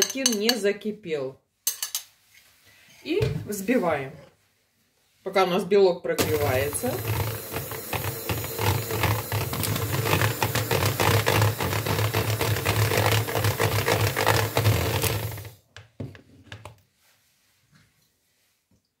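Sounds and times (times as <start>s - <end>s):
electric hand mixer running: 6.2s - 15.6s.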